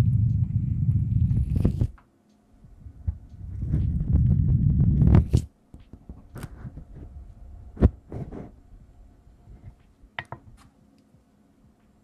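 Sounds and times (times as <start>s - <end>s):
fingertips scratching on microphone: 1.1s - 2.0s, 3.4s - 5.5s, 6.1s - 7.2s, 7.8s - 8.6s.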